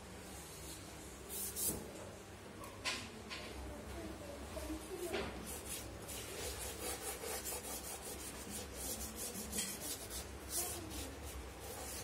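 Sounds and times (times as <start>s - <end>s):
charcoal scratching on paper: 5.4s - 12.0s.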